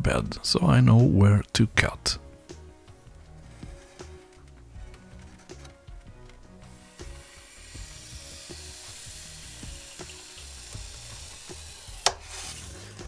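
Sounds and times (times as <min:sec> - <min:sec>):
soft background music: 0:00.0 - 0:13.0
hot wire cutting foam hiss: 0:06.6 - 0:13.0.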